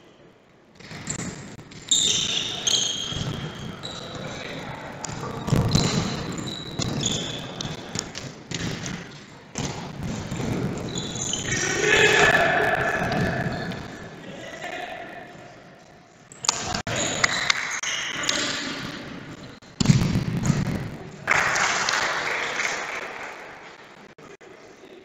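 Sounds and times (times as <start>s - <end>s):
players shouting: 11.2s - 15.8s.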